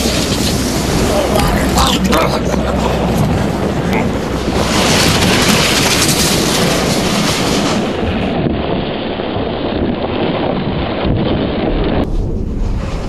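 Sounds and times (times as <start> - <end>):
bobsled rushing rumble: 0.0 - 13.0.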